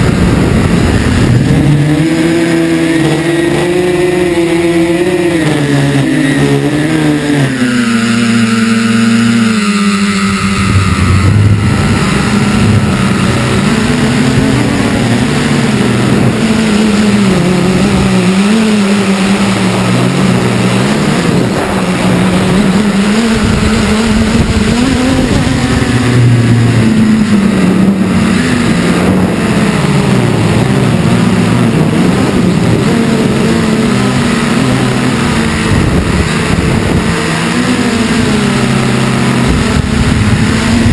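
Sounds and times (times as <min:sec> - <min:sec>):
drone propellers whirring: 0:00.0 - 0:40.9.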